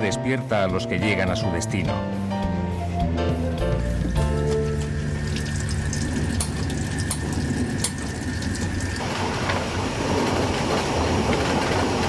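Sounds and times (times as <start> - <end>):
tap water into metal basin: 4.2 - 9.0.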